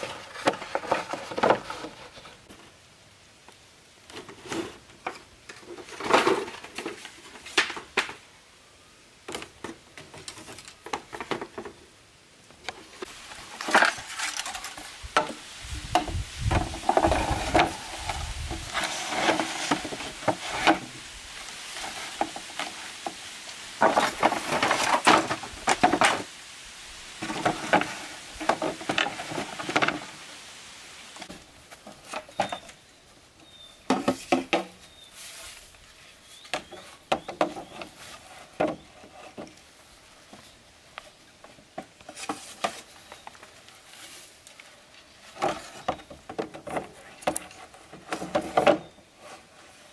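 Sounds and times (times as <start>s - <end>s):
bamboo poles knocking together: 0.0s - 2.1s, 5.0s - 8.3s, 12.6s - 21.0s, 23.8s - 26.3s, 27.2s - 30.2s, 33.8s - 34.8s, 36.5s - 39.6s, 45.3s - 49.0s.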